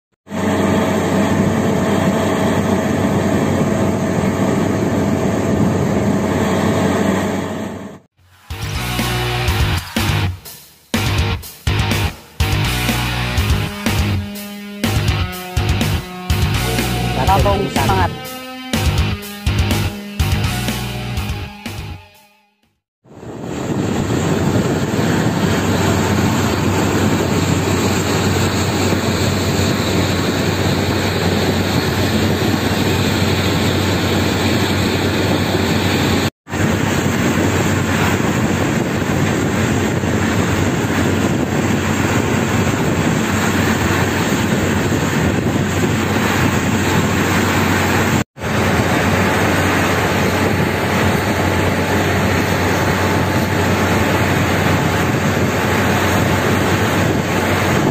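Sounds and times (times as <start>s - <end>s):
low hum: 14.9s - 19.2s
heavy machinery engine noise: 23.2s - 57.9s.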